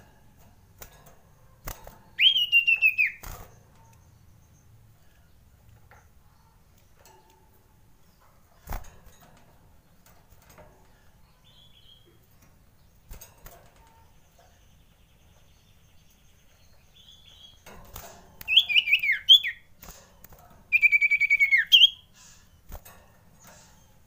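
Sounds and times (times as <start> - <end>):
bird alarm calls: 2.2 - 3.2, 18.5 - 19.6, 20.7 - 22.3.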